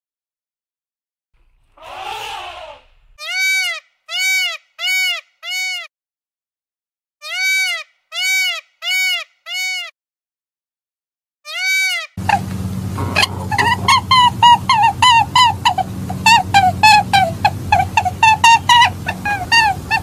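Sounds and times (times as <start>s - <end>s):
animal calling: 1.4s - 5.9s, 7.2s - 9.9s, 11.5s - 20.0s.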